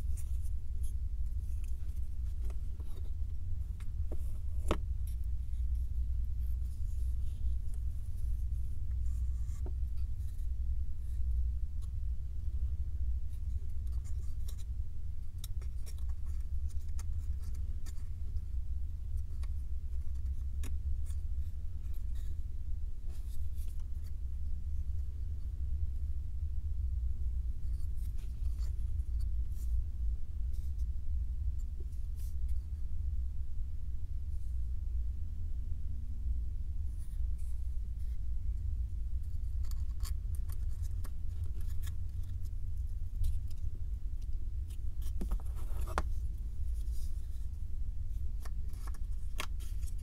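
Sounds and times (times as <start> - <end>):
puzzle pieces scratching and rubbing: 0.0 - 12.6, 13.2 - 22.4, 27.6 - 29.8, 39.1 - 50.0
steady low rumble: 0.0 - 50.0.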